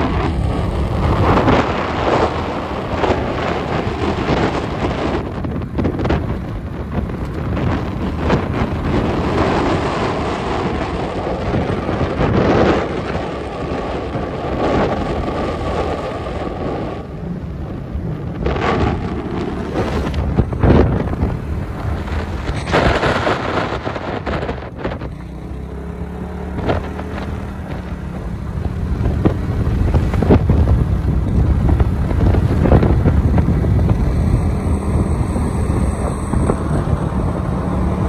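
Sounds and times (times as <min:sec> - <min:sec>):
road and engine rumble: 0:00.0 - 0:38.0
wind buffeting microphone: 0:00.0 - 0:38.0.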